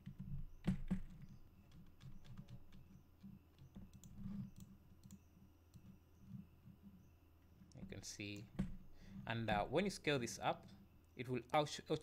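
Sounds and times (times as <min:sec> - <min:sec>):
keyboard and mouse clicks: 0:00.0 - 0:06.0.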